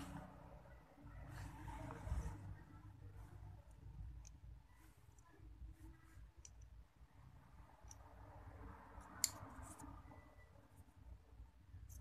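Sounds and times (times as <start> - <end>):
small objects handled on a tabletop: 8.9 - 10.0.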